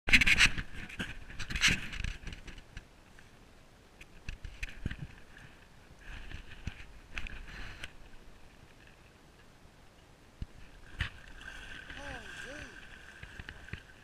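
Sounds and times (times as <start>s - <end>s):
water splashing around boat: 10.4s - 14.0s.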